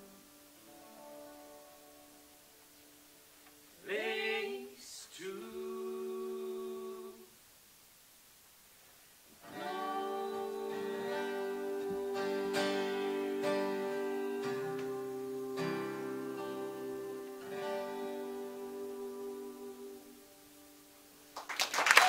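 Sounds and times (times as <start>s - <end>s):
acoustic guitar strumming: 0.0s - 3.6s, 9.4s - 20.8s
man and woman singing: 3.8s - 7.4s, 9.4s - 20.3s.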